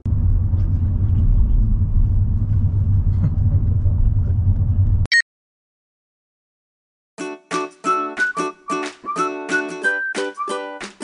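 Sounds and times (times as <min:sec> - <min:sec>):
car road noise rumble: 0:00.0 - 0:05.1.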